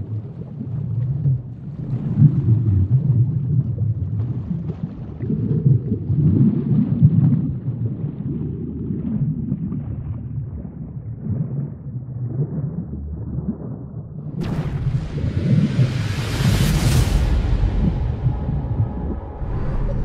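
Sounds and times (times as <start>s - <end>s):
low rumbling noise: 14.0s - 20.0s.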